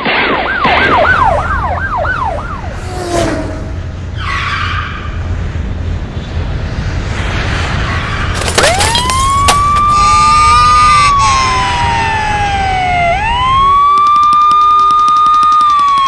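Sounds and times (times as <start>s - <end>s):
police siren wailing: 0.2s - 2.8s, 8.4s - 16.0s
car engine rumble: 0.9s - 14.0s.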